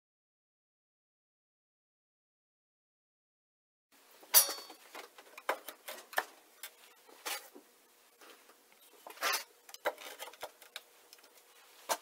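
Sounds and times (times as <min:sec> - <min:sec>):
wooden pieces knocking and scraping: 0:08.2 - 0:12.0.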